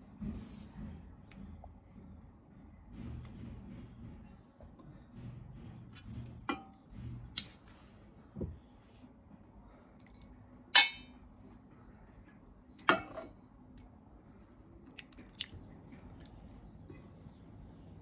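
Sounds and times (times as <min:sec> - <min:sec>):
metal ladle clinking: 0:10.8 - 0:11.2.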